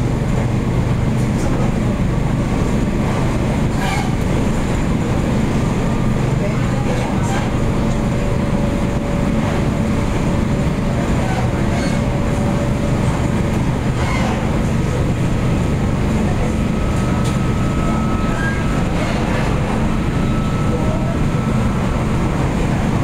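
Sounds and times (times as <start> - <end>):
train rumbling on track: 0.0 - 23.0
higher steady tone: 15.6 - 22.6.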